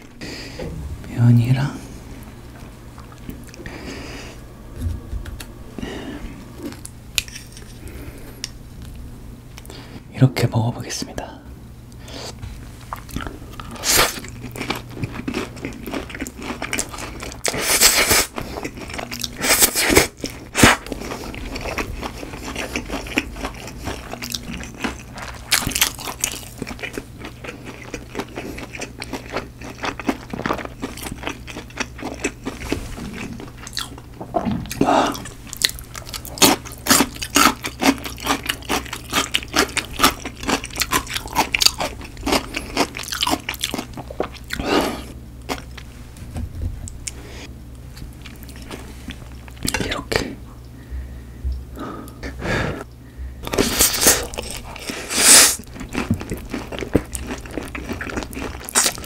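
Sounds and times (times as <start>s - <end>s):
wet chewing and mouth clicks: 12.9s - 44.6s, 53.4s - 59.0s
noodle slurping: 53.6s - 55.6s.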